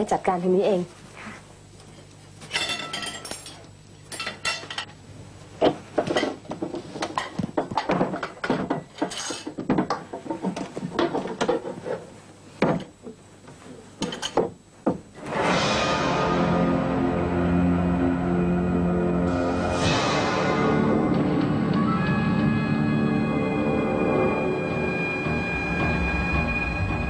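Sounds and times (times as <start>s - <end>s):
dishes and cutlery clinking: 2.4s - 4.9s.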